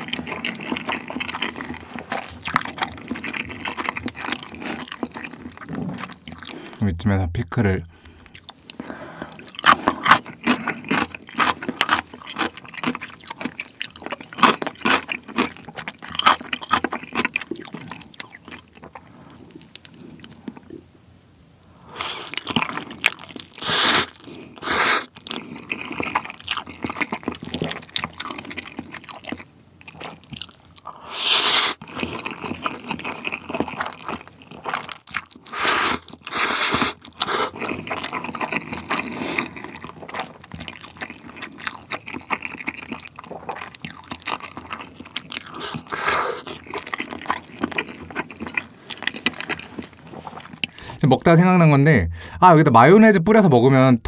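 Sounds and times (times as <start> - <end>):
wet chewing: 0.0 - 6.8, 8.0 - 20.8, 21.9 - 51.0
noodle slurping: 21.9 - 26.4, 30.9 - 34.0, 35.4 - 51.0.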